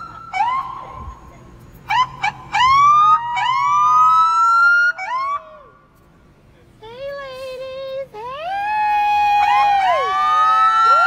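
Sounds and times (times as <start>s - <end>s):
police siren whoops and wails: 0.0s - 1.3s, 1.9s - 5.8s, 8.4s - 11.0s.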